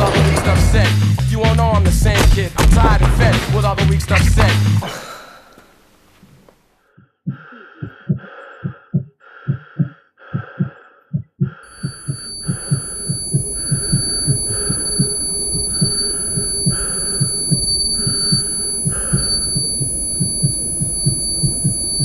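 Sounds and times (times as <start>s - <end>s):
heartbeat double thump: 0.0s - 4.8s, 7.3s - 22.0s
high steady ringing tone: 11.7s - 22.0s
muffled pulsing hiss: 11.8s - 22.0s.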